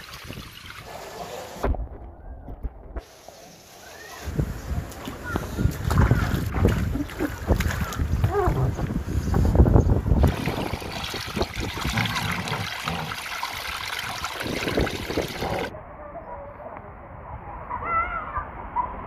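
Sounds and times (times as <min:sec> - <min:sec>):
wind buffeting microphone: 0:04.2 - 0:13.0, 0:14.0 - 0:15.7
water rushing down slide: 0:10.2 - 0:15.7.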